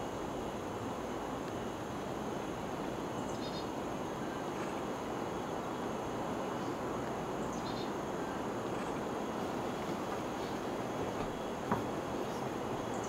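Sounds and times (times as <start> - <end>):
bird chirping: 3.2 - 3.7, 7.4 - 8.0.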